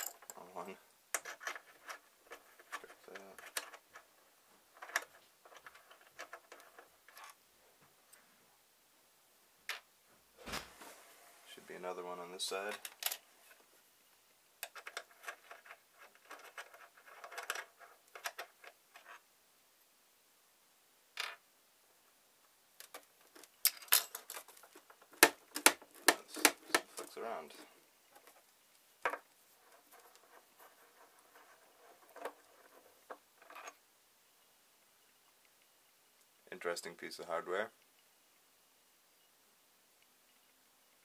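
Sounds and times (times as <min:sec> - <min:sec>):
faint scraping: 0:10.4 - 0:13.7.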